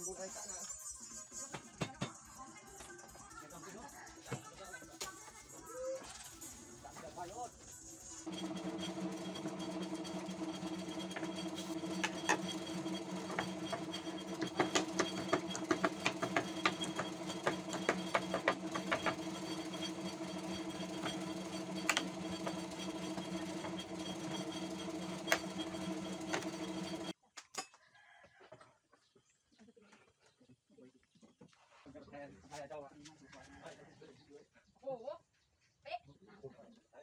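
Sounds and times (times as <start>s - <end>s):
electric motor hum: 7.9s - 27.1s.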